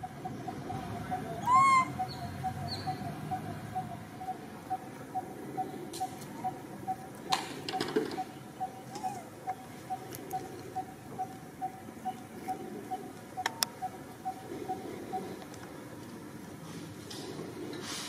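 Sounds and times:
bird calling short notes: 0:01.4 - 0:03.0.

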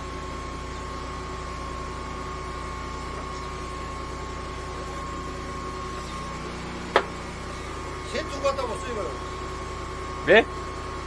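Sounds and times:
engine drone: 0:00.0 - 0:11.0
high whine: 0:01.8 - 0:10.5.

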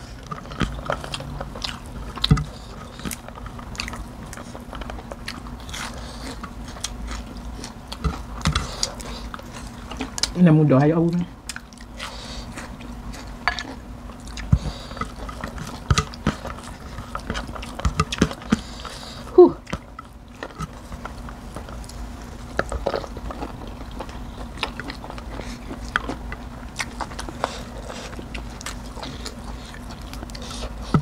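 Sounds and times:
chewing and mouth sounds: 0:00.0 - 0:10.4, 0:11.1 - 0:31.0
steady low hum: 0:00.0 - 0:31.0.

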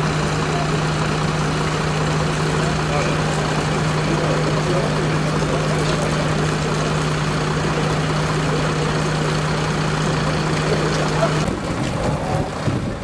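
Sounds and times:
broad rushing noise: 0:00.0 - 0:13.0
truck engine idling: 0:00.0 - 0:13.0.

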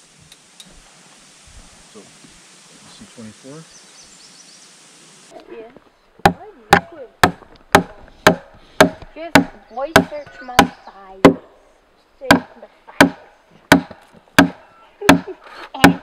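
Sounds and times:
hatchet chopping log: 0:06.2 - 0:11.4, 0:12.2 - 0:16.0.

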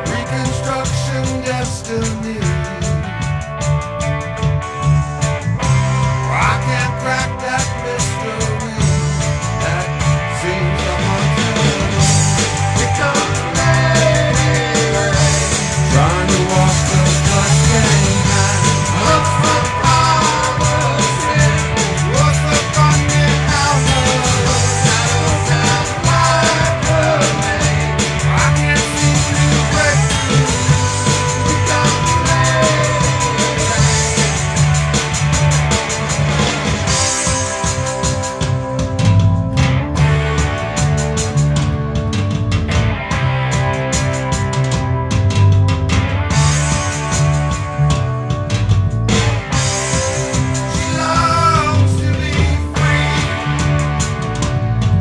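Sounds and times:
man singing: 0:00.0 - 0:03.0, 0:06.2 - 0:34.5, 0:50.6 - 0:53.7
rock band playing: 0:00.0 - 0:55.0.

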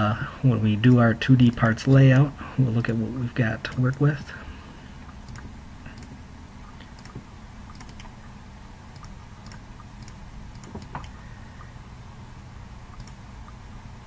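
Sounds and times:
steady low hum: 0:00.0 - 0:14.0
computer mouse clicking: 0:00.8 - 0:02.3, 0:05.2 - 0:06.2, 0:06.8 - 0:08.2, 0:08.9 - 0:11.2, 0:12.9 - 0:13.6.

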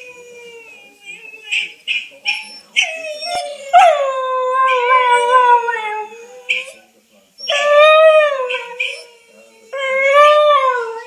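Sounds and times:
dog howling: 0:02.3 - 0:06.7, 0:07.4 - 0:11.0
dog yipping: 0:08.4 - 0:09.1.

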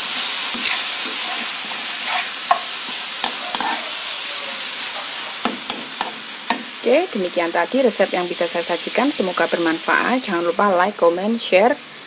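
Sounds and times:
chicken sizzling in a wok: 0:00.0 - 0:12.0
spatula scraping and tapping pan: 0:00.5 - 0:06.7.

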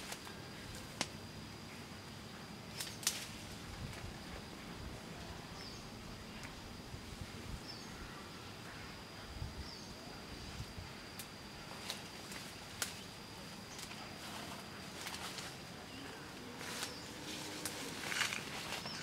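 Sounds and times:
rustling through undergrowth: 0:00.0 - 0:08.9, 0:10.4 - 0:19.0
high insect drone: 0:00.0 - 0:19.0
sharp twig snaps: 0:01.0 - 0:01.2, 0:02.7 - 0:03.4, 0:12.8 - 0:13.0.

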